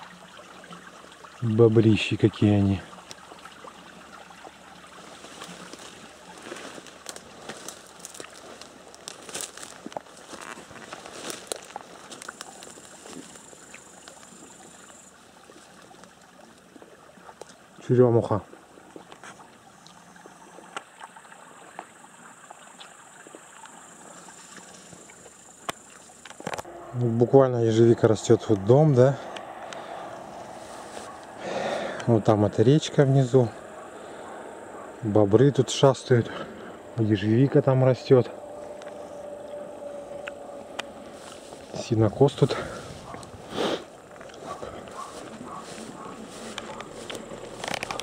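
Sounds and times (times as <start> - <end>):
water trickling: 0.0 - 34.3, 35.1 - 48.0
brush rustling: 4.8 - 16.1, 29.7 - 32.0, 40.6 - 48.0.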